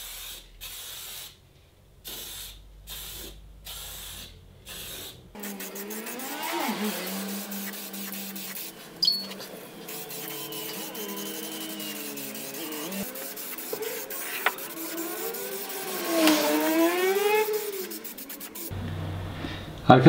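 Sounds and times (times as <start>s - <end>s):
aerosol spray can hissing: 0.0s - 1.4s, 2.0s - 18.8s.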